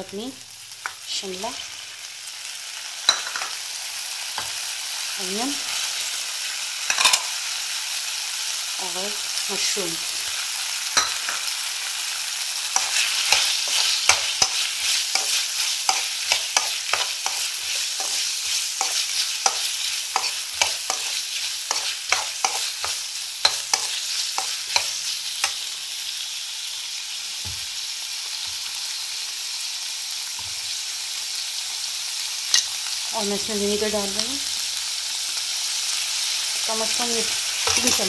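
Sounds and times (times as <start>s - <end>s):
vegetables sizzling in hot oil: 0.0s - 38.0s
metal spoon scraping a wok: 12.7s - 25.6s, 37.6s - 38.0s.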